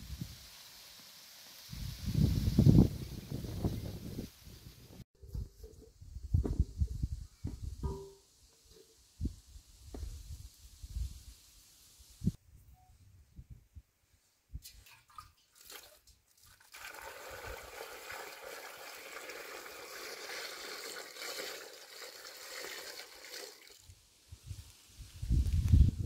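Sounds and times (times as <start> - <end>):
metal pitcher knocks: 7.5 - 8.8
water pouring into metal basin: 14.7 - 23.9.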